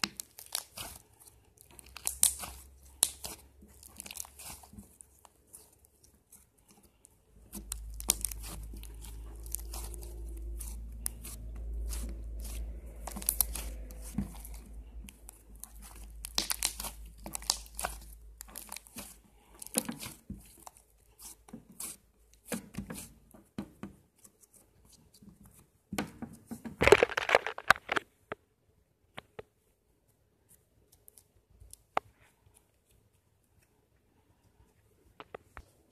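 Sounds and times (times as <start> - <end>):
slime squelch: 0.0 - 25.7, 26.8 - 28.3.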